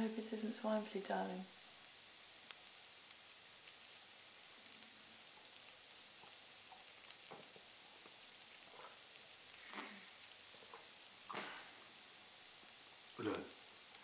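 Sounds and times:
faint steady hiss: 0.0 - 14.0.

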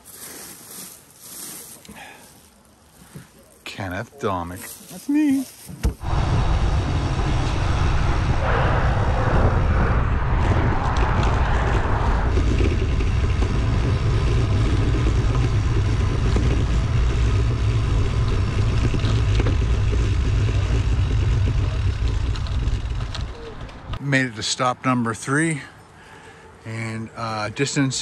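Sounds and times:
wind buffeting microphone: 6.0 - 24.0.

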